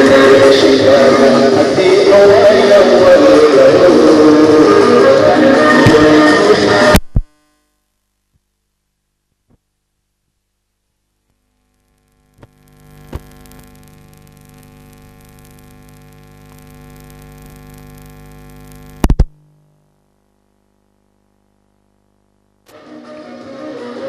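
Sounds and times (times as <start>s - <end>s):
steady electronic hum: 0.0s - 24.0s
clicks: 11.3s - 19.4s
loud pops: 12.4s - 19.4s.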